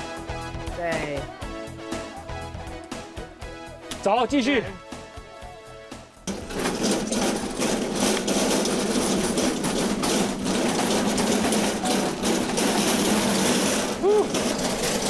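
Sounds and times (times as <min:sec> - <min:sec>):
knocks and rattles: 0:06.3 - 0:15.0
small engine running: 0:06.3 - 0:15.0.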